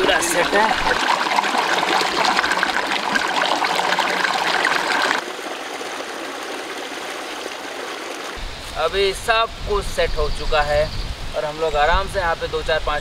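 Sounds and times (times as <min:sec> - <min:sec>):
stream water flowing: 0:00.0 - 0:09.0.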